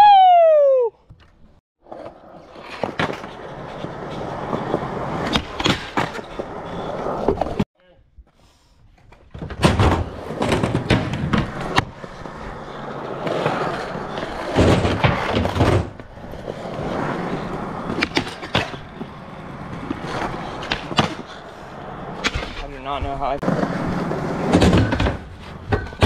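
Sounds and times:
skateboard grinding on rail: 0:01.8 - 0:07.6, 0:09.7 - 0:26.0
skateboard rolling on ramp: 0:01.8 - 0:07.6, 0:09.0 - 0:26.0
skateboard clacks and landings: 0:09.2 - 0:12.4, 0:13.0 - 0:21.4, 0:23.4 - 0:26.0.

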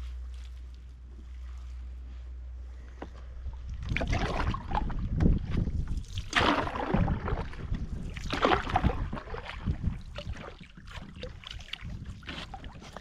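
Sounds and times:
wind rumbling on microphone: 0:02.7 - 0:13.0
paddle strokes swishing through water: 0:02.8 - 0:13.0.

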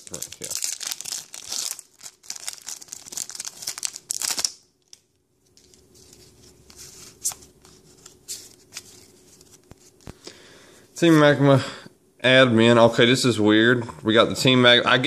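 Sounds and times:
foil wrapper crinkling and tearing: 0:00.0 - 0:06.3.

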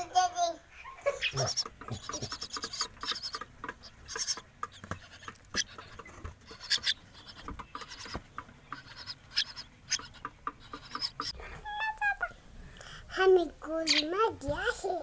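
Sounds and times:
stick scraping and tapping: 0:01.5 - 0:11.4.

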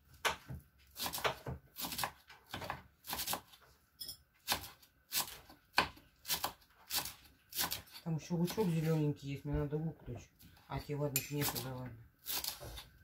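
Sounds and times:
knife chopping on wooden board: 0:00.1 - 0:03.6, 0:04.4 - 0:08.7, 0:11.1 - 0:13.0.

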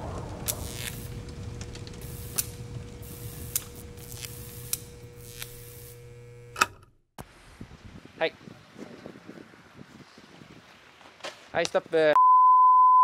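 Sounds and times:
electrical crackles: 0:00.0 - 0:06.6
neon sign electrical hum: 0:00.0 - 0:07.0.

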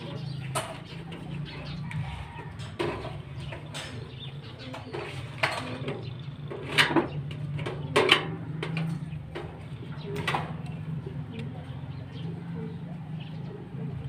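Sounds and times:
knocks and clatters: 0:00.3 - 0:10.8.

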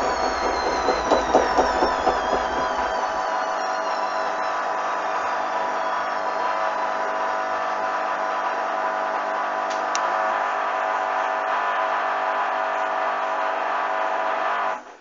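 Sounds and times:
washing machine motor whining: 0:00.0 - 0:04.8.

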